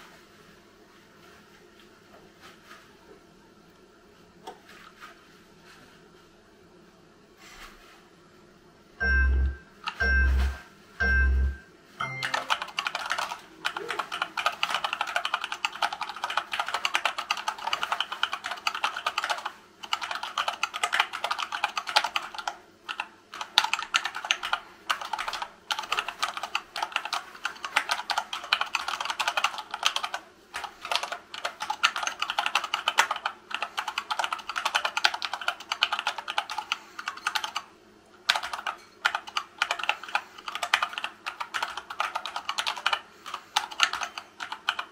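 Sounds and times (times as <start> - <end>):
fast typing on keyboard: 12.0 - 44.9.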